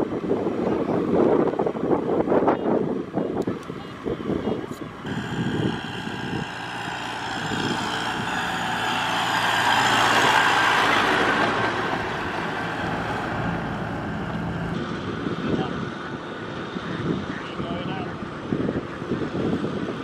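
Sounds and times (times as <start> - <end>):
tractor engine driving past: 5.0 - 15.0.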